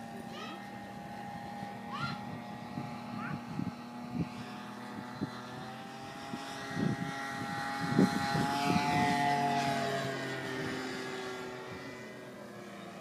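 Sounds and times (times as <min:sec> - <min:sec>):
model plane engine droning: 0:00.0 - 0:13.0.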